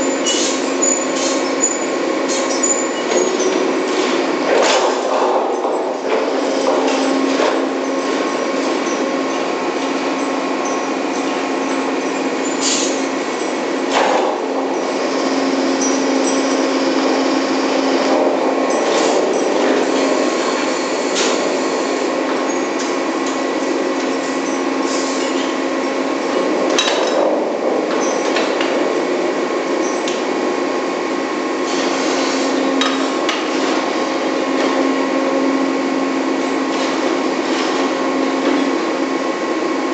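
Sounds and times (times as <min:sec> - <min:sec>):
drilling machinery drone: 0:00.0 - 0:39.9.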